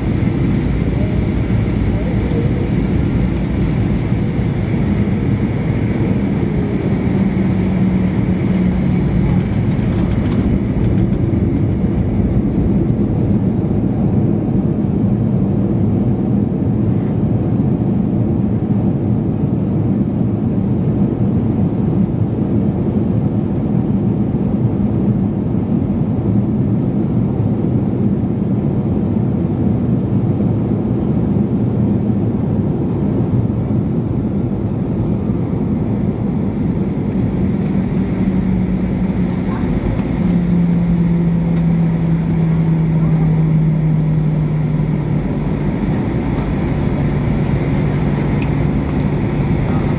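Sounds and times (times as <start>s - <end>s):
engines roaring: 0.0s - 15.0s, 33.7s - 49.9s
runway rumble: 0.0s - 17.5s, 31.4s - 49.9s
jet engine hum in cabin: 0.0s - 49.9s.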